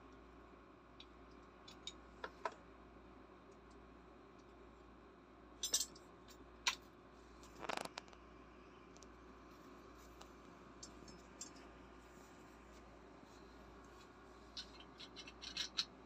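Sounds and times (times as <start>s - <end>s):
metal tools clinking: 5.6s - 6.0s, 14.5s - 15.9s.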